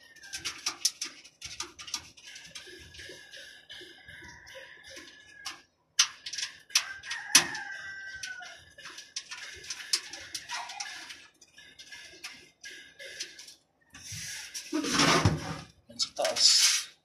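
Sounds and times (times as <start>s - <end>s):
rooster crowing: 4.0s - 5.6s, 6.7s - 8.7s.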